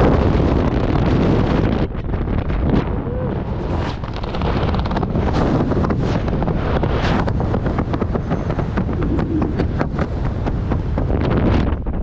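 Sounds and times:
strong wind buffeting microphone: 0.0 - 12.0.

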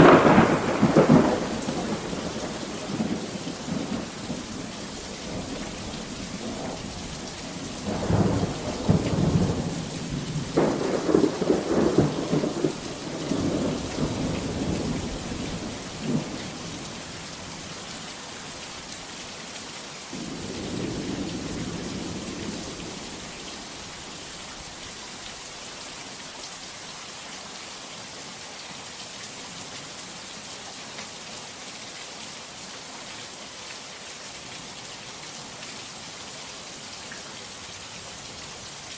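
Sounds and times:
rolling thunder with sharp cracks: 0.0 - 4.6, 7.8 - 16.9, 20.2 - 23.2
heavy rain hiss: 0.0 - 38.9.

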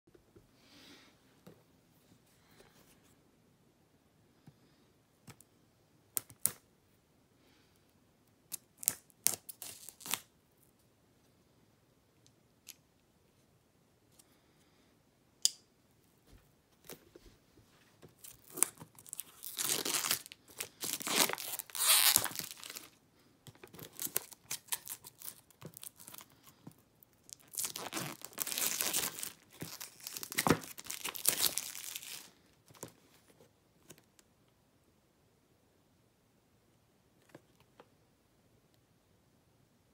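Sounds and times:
plastic wrap tearing and crinkling: 8.6 - 10.3, 18.2 - 23.0, 23.7 - 26.3, 27.3 - 32.9.

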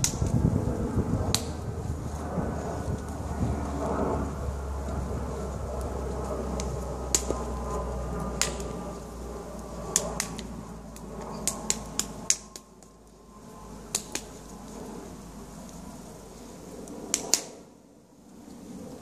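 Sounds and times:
low steady rumble: 0.0 - 19.0
sharp snapping clicks of hands: 1.3 - 1.5, 6.6 - 7.4, 8.4 - 8.7, 9.9 - 12.7, 13.9 - 14.3, 17.1 - 17.6.

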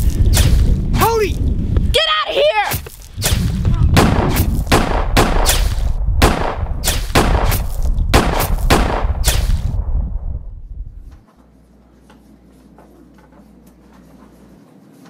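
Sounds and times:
deep continuous rumble: 0.0 - 2.0, 2.8 - 11.2
gunshots volley: 2.7 - 9.9.

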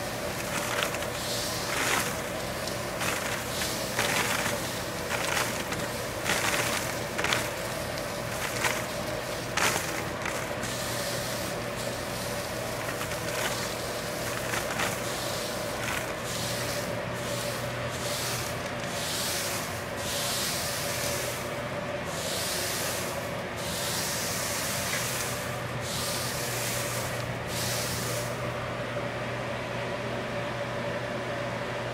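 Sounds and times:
steady hum: 0.0 - 31.9
flower heads rustling in a bag: 0.2 - 10.8, 12.4 - 16.7.

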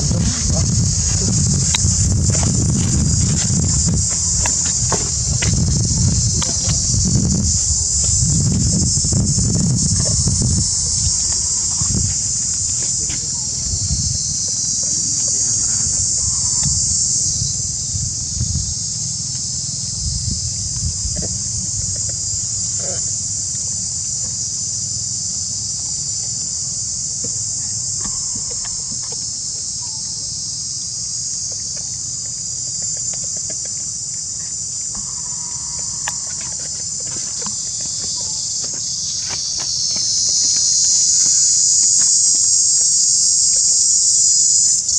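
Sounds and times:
low rumble: 0.0 - 14.3
insects chorus: 0.0 - 44.9.

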